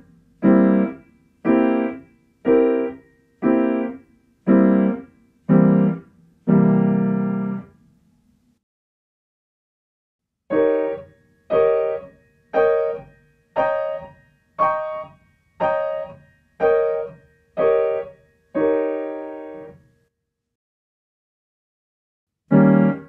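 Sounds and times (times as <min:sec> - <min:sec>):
piano blocked chords: 0:00.0 - 0:07.8, 0:10.5 - 0:19.8, 0:22.5 - 0:23.0.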